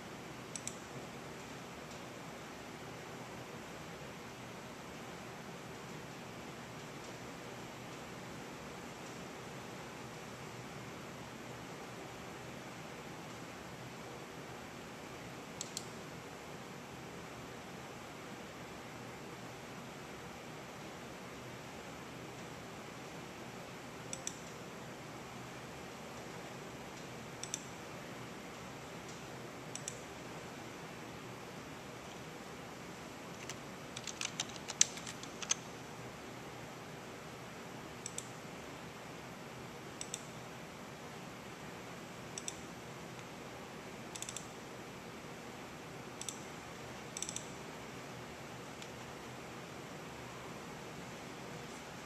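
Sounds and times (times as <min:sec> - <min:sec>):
steady background hiss: 0:00.0 - 0:52.0
computer mouse clicks: 0:00.5 - 0:00.8, 0:15.6 - 0:16.0, 0:24.1 - 0:24.6, 0:27.0 - 0:27.7, 0:29.1 - 0:30.1, 0:33.3 - 0:35.7, 0:38.0 - 0:38.4, 0:40.0 - 0:40.3, 0:42.4 - 0:43.3, 0:44.1 - 0:44.5, 0:46.2 - 0:46.4, 0:47.0 - 0:47.6.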